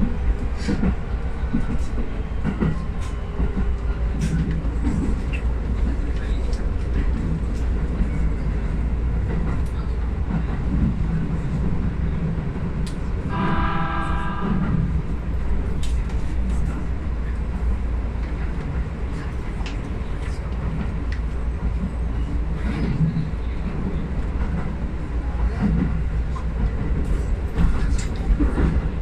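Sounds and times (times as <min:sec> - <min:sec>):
train horn: 0:13.3 - 0:15.1.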